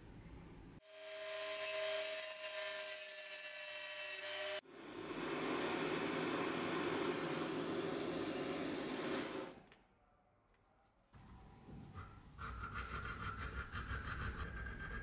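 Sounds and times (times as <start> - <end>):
blowtorch burning: 4.8 - 9.6.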